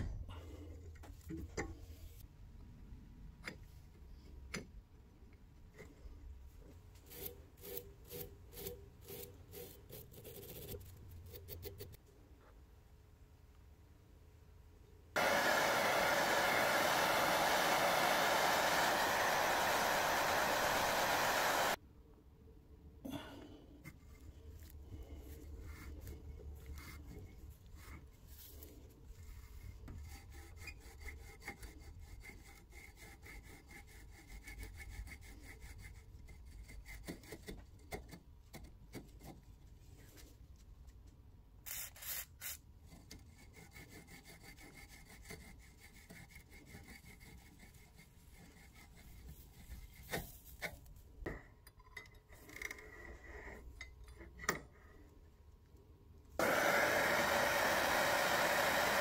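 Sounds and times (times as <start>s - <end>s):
blowtorch hissing: 15.2s - 21.8s, 56.4s - 59.0s
short sprays: 15.2s - 21.8s.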